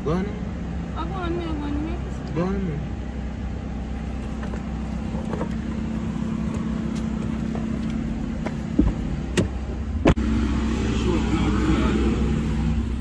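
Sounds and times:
car engine idling: 0:00.0 - 0:13.0
car door opening: 0:04.2 - 0:10.2
person climbing out of car: 0:04.2 - 0:10.2.

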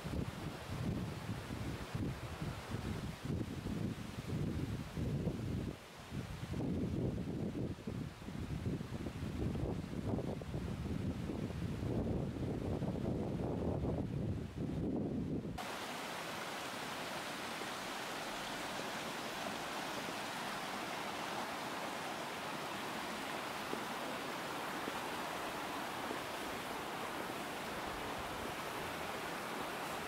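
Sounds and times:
river rushing over boulders: 0:15.6 - 0:30.0.

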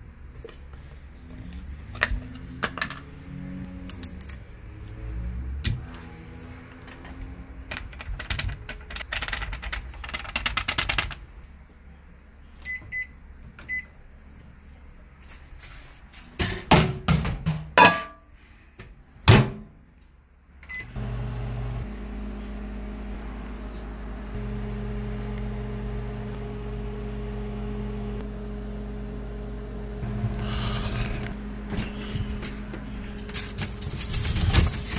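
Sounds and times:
microwave humming: 0:20.7 - 0:34.9
food cup rustling: 0:31.9 - 0:34.9.

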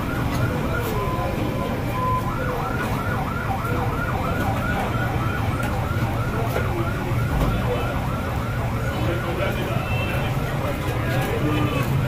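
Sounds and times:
electronic siren yelping: 0:00.0 - 0:09.5
street noise rumble: 0:00.0 - 0:12.0.

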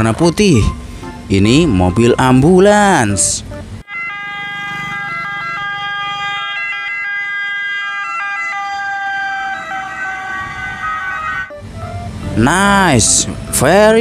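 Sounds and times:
electronic ambulance siren: 0:03.8 - 0:12.2.

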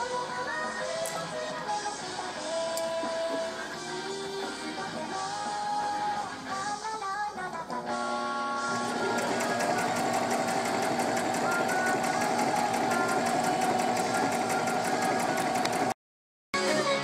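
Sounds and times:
sewing machine stitching: 0:08.7 - 0:16.0.

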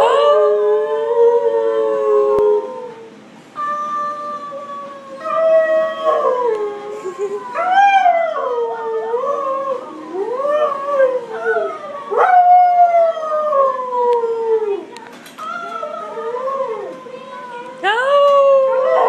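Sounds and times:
dog howling: 0:00.0 - 0:19.0.

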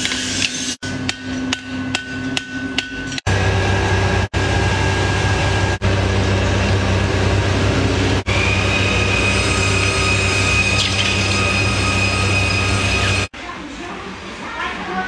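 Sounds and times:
high steady whine: 0:03.3 - 0:13.3
induction heater humming: 0:03.3 - 0:13.3.

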